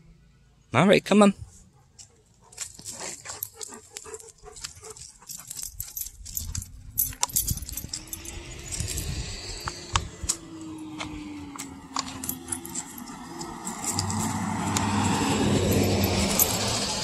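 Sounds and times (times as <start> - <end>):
collar tags jingling: 1.4 - 17.0
passing vehicle hum: 6.7 - 17.0.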